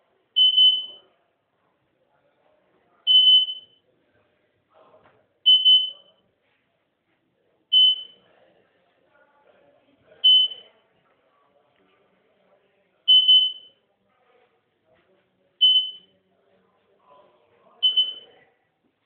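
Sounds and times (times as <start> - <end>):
electronic high beeps: 0.4 - 1.0, 3.1 - 3.8, 5.5 - 6.0, 7.8 - 8.1, 10.3 - 10.6, 15.6 - 16.0, 17.8 - 18.2.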